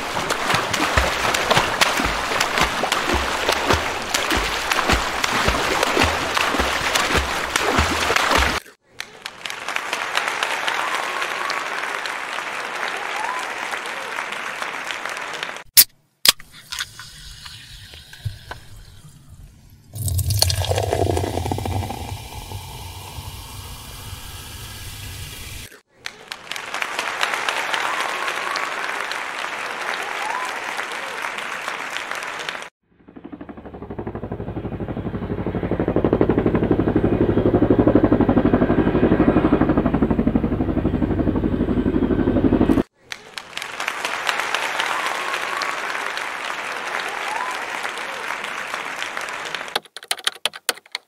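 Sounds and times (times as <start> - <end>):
splashing: 0.0 - 8.7, 20.0 - 23.9
crowd noise: 0.0 - 15.6, 25.9 - 32.7, 43.0 - 49.8
helicopter rotor beats: 0.1 - 8.6, 33.0 - 42.9
low rumble: 20.0 - 25.6.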